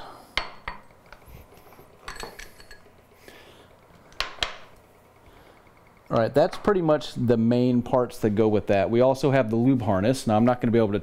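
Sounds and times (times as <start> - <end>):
metal parts clinking on wood: 2.0 - 2.9.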